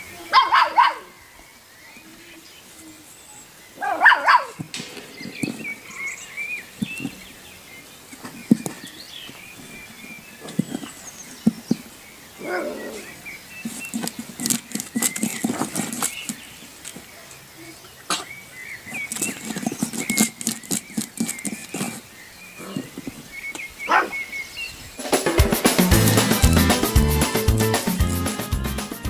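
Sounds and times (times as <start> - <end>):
puppy scraping wooden board: 13.5 - 17.0, 18.9 - 23.2.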